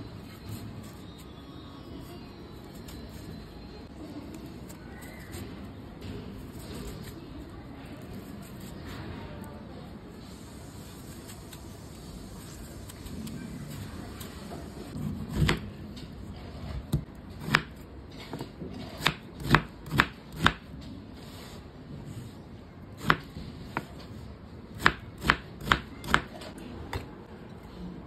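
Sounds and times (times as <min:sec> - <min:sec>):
knife chopping on cutting board: 0:18.8 - 0:20.7, 0:23.0 - 0:23.9, 0:24.8 - 0:26.4.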